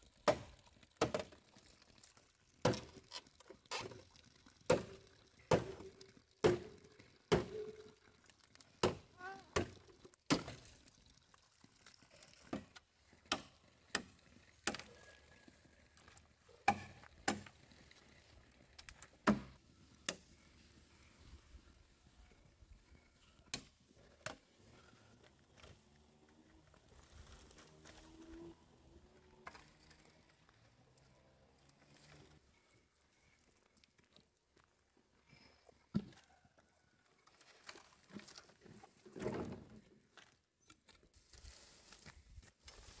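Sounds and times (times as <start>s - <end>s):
machete chopping bamboo: 6.4s - 6.7s, 7.3s - 7.6s, 16.6s - 17.4s, 19.2s - 20.2s.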